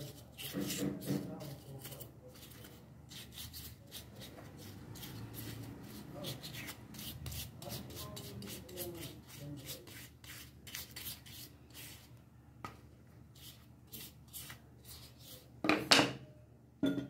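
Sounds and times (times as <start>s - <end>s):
sandpaper rubbing on plywood: 0.0s - 12.1s.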